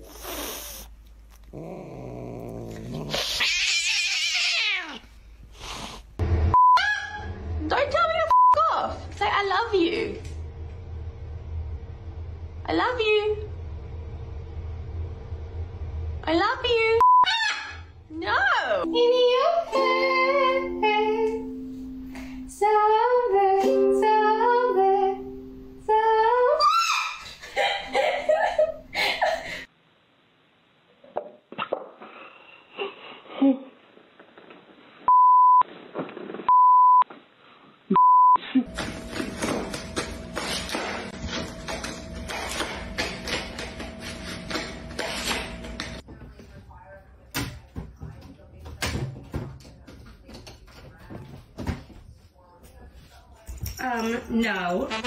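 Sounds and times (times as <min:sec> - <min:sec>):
cat growling: 0:00.0 - 0:05.1
cat yowling: 0:03.1 - 0:05.1
censor bleep: 0:06.5 - 0:07.0, 0:08.3 - 0:08.6, 0:17.0 - 0:17.3, 0:35.1 - 0:35.6, 0:36.5 - 0:37.1, 0:37.9 - 0:38.4
woman singing: 0:18.2 - 0:21.8, 0:22.4 - 0:26.6.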